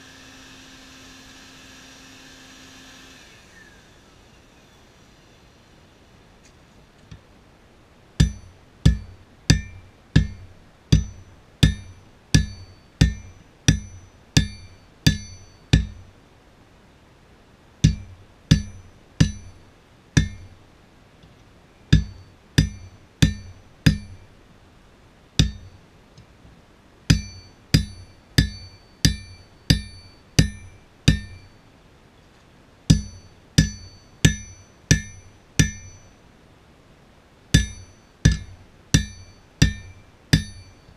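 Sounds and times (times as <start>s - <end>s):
hammer striking steel on anvil: 8.2s - 16.1s, 17.8s - 19.6s, 20.2s - 20.6s, 21.9s - 24.3s, 25.4s - 25.8s, 27.1s - 31.6s, 32.9s - 36.2s, 37.6s - 40.9s.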